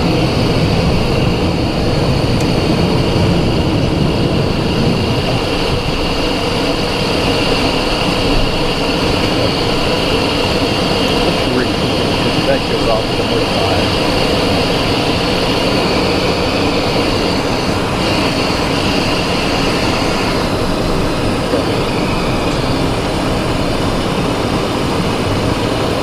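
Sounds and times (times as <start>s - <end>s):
jet engines humming: 0.0s - 26.0s
rushing airflow: 0.0s - 26.0s.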